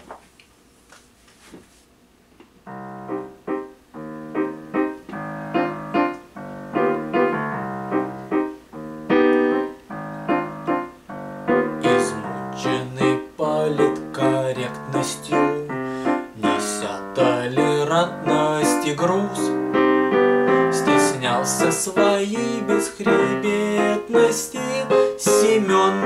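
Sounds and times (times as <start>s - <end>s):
piano chords on digital keyboard: 2.6s - 26.0s
man singing: 11.8s - 19.6s, 20.6s - 26.0s.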